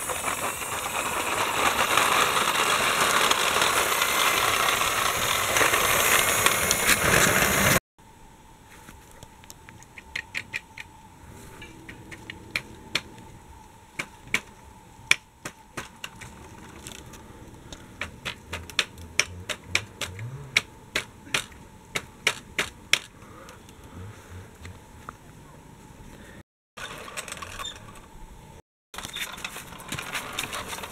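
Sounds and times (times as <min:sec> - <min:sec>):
toy train clicking on track: 0:00.0 - 0:07.8, 0:29.0 - 0:30.9
faint steady whine: 0:08.0 - 0:19.4.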